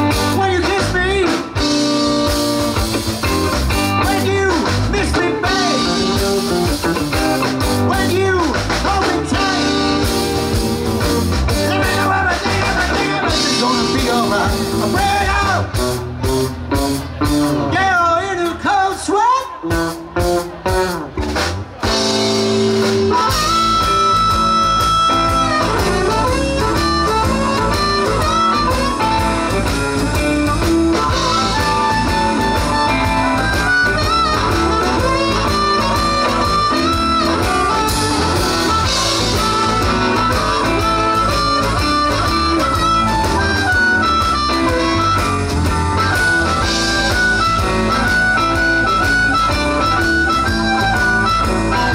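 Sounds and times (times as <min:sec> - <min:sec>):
amplified harmonica: 0:00.0 - 0:15.9, 0:21.8 - 0:51.9
blues band playing: 0:00.0 - 0:51.9
person singing: 0:04.0 - 0:06.2, 0:07.9 - 0:10.3, 0:11.5 - 0:15.7.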